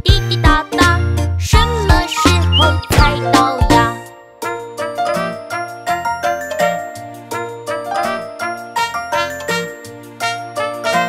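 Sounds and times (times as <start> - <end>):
person singing children's song: 0.0 - 4.0.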